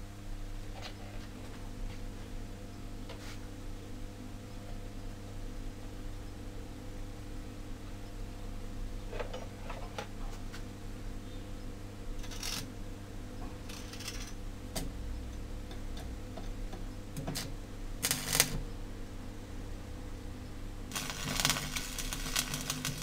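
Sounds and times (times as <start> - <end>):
steady low hum: 0.0 - 23.0
electric arc welder crackling: 12.2 - 12.8, 13.6 - 14.4, 17.2 - 18.6, 20.9 - 23.0.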